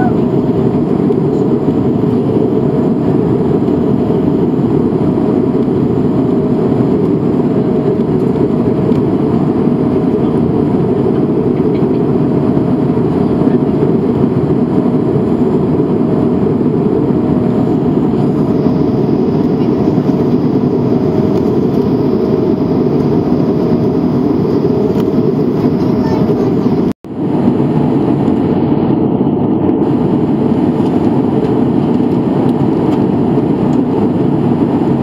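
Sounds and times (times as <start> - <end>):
aircraft cabin roar: 0.0 - 35.0.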